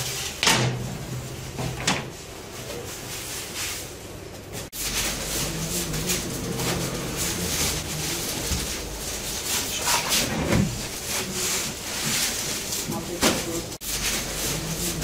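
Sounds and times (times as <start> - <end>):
flatbreads rustling and flapping: 1.3 - 15.0
low hum: 4.8 - 11.0.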